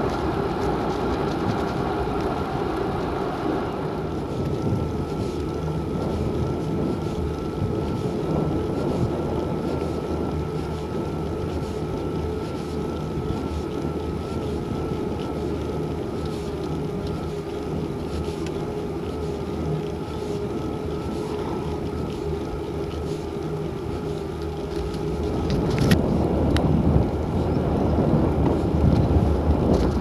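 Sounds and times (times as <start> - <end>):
wind rush: 0.0 - 15.0, 23.6 - 30.0
road noise: 0.0 - 30.0
wavering whine: 0.0 - 30.0.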